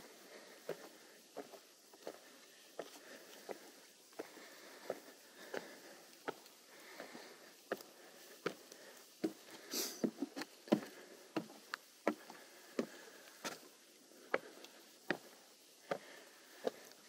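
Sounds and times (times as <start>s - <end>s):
footsteps on a trail: 0.0s - 17.0s
brief hiss: 9.7s - 10.1s.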